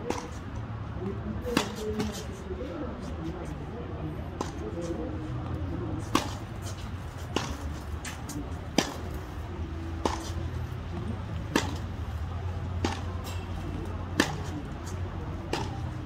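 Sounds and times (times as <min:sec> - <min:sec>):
tennis ball hitting racquet strings: 0:00.0 - 0:00.4, 0:01.4 - 0:02.3, 0:04.4 - 0:04.9, 0:06.0 - 0:12.0, 0:12.7 - 0:16.0
tennis ball bouncing on hard court: 0:01.4 - 0:02.2, 0:06.0 - 0:11.9, 0:12.8 - 0:13.1, 0:14.1 - 0:16.0.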